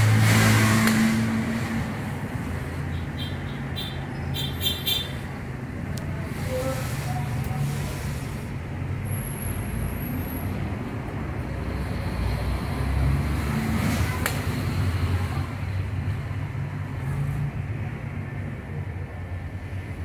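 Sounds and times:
low rumble of road traffic: 0.0 - 20.0.

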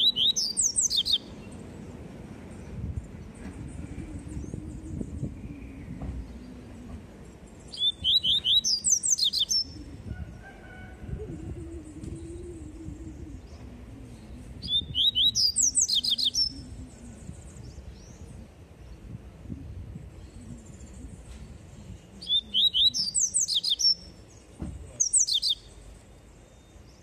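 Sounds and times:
bird singing sharp notes: 14.2 - 17.4, 22.2 - 24.0, 25.0 - 25.8.

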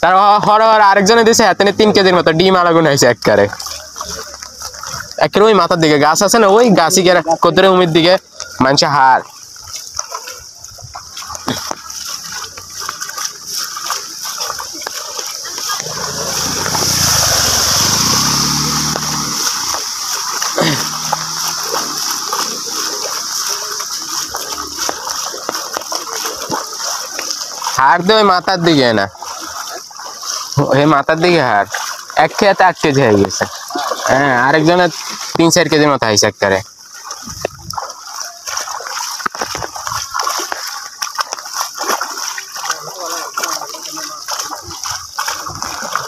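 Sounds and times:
floodwater rushing: 0.0 - 46.0
splashes from people wading: 0.0 - 46.0
flowing water hiss: 0.1 - 46.0
water pouring off net: 9.2 - 35.4, 36.8 - 46.0.

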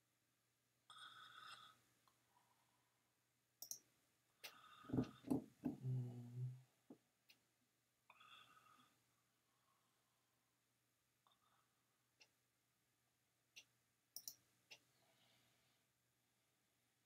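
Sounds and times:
computer mouse clicks: 3.6 - 5.2, 13.6 - 14.8.

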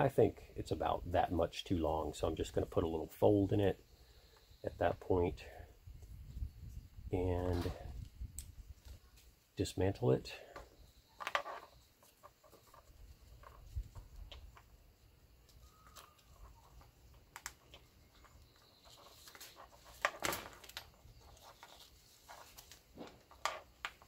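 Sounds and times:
nylon webbing rustling: 17.7 - 23.4.

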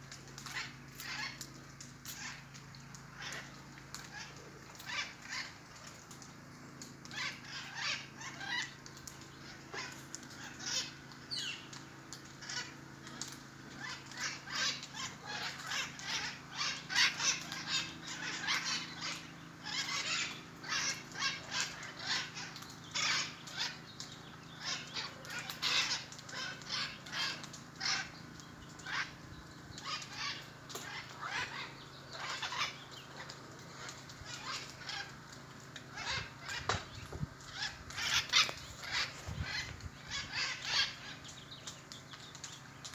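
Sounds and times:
parrots calling harshly: 0.4 - 1.4, 2.1 - 2.5, 3.1 - 5.5, 7.1 - 8.8, 9.4 - 11.7, 12.3 - 23.8, 24.6 - 28.2, 28.8 - 29.2, 29.8 - 35.3, 35.9 - 41.3.

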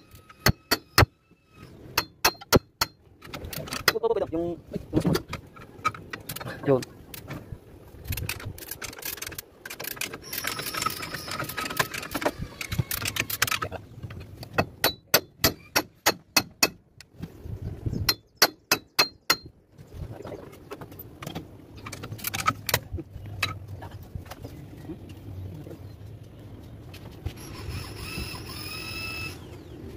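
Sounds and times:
wrenches clinking on steel: 8.2 - 16.2.

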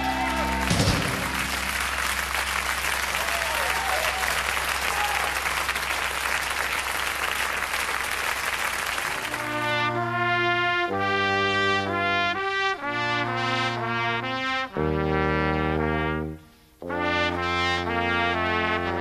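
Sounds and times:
trumpets playing a sustained chord: 0.0 - 3.2, 9.2 - 19.0
audience applauding: 0.0 - 9.9.

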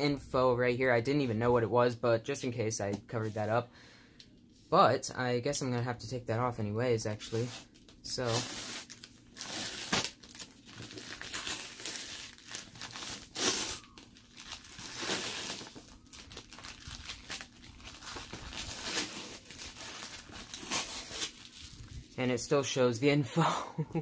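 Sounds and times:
plastic crinkling: 7.4 - 22.2.

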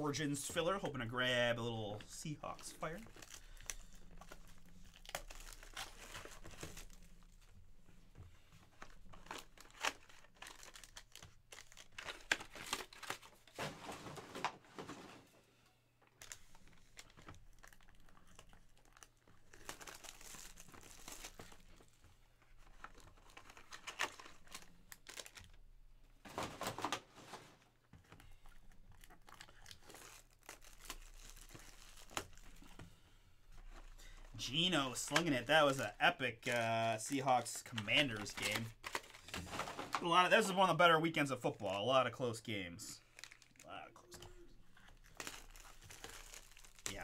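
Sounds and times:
plastic shrink-wrap crinkling: 2.0 - 7.5, 8.7 - 13.7, 16.2 - 25.6, 28.1 - 32.8, 33.6 - 40.5, 43.0 - 43.7, 44.6 - 47.0.

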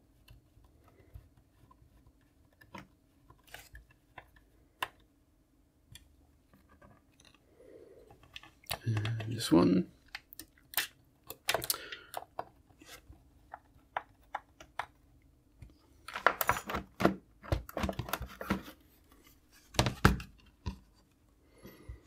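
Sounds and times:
plastic rattling and scraping: 16.0 - 21.0.

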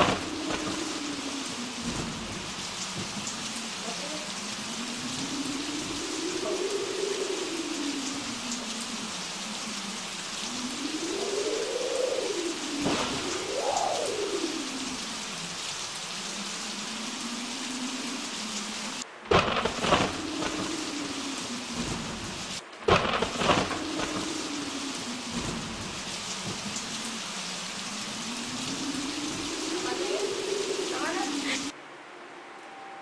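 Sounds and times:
loud thunderclaps: 0.0 - 3.5, 10.5 - 14.9, 19.2 - 27.0
howling wind: 0.0 - 33.0
steady rain: 0.0 - 33.0.

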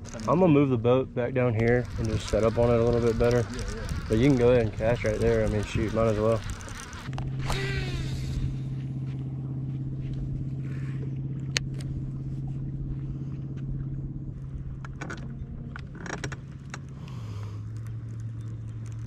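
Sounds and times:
reel and tackle clicks: 0.0 - 0.8, 1.4 - 7.6, 14.8 - 19.0
electric trolling motor humming: 0.0 - 19.0.

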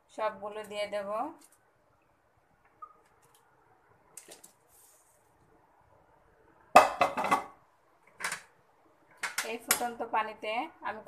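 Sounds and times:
kitchenware clattering against pan: 6.8 - 7.6.

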